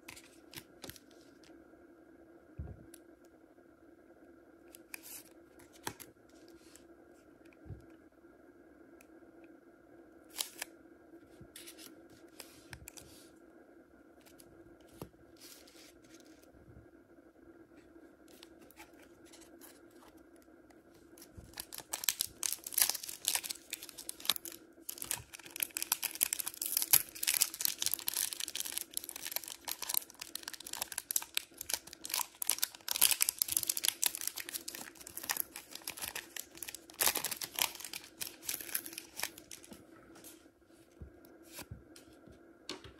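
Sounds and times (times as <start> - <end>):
foil wrapper rustling: 21.2 - 39.7
foil wrapper tearing open: 21.5 - 39.7.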